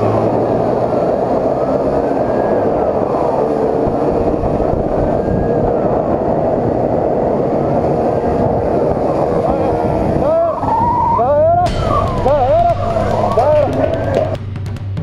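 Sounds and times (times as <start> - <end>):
wind rushing: 0.0 - 14.4
faint siren wailing: 1.4 - 14.4
motorcycle engine: 11.6 - 15.0.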